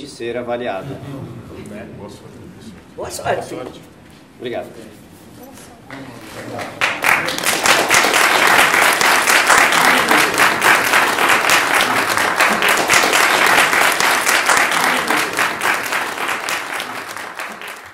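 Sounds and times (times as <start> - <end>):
audience applauding: 5.9 - 17.9.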